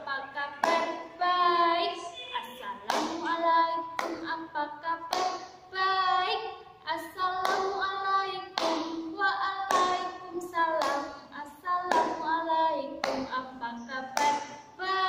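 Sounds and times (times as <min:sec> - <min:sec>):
woman singing: 0:00.0 - 0:15.0
hands clapping: 0:00.6 - 0:01.0, 0:02.8 - 0:03.3, 0:04.0 - 0:04.3, 0:05.1 - 0:05.6, 0:07.4 - 0:07.8, 0:08.6 - 0:09.0, 0:09.7 - 0:10.1, 0:10.8 - 0:11.1, 0:11.9 - 0:12.3, 0:13.0 - 0:13.4, 0:14.1 - 0:14.6.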